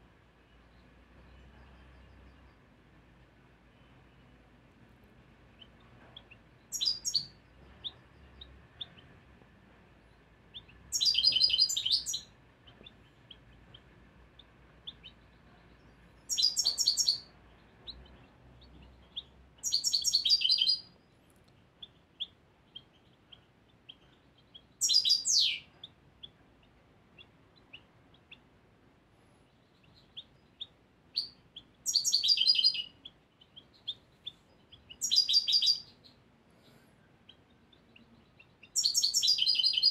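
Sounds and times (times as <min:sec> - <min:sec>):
faint bird chirps: 0:00.0 - 0:02.8, 0:03.6 - 0:39.9
goldfinch twittering song: 0:05.6 - 0:09.0, 0:10.5 - 0:13.9, 0:14.8 - 0:20.9, 0:21.8 - 0:28.5, 0:29.5 - 0:36.2, 0:37.2 - 0:39.9.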